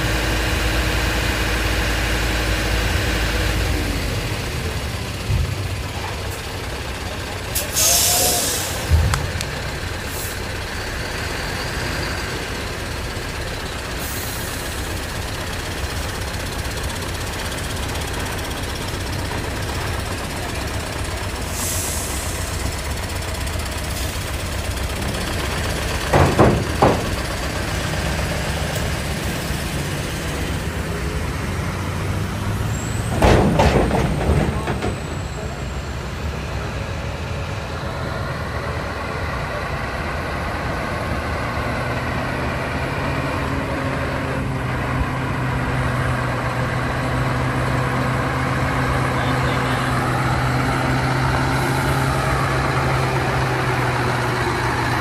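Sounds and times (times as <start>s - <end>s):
truck diesel engine running: 0.0s - 55.0s
air-brake hisses: 7.6s - 8.9s, 21.4s - 22.6s
loud clunks: 25.8s - 27.5s, 33.0s - 35.2s.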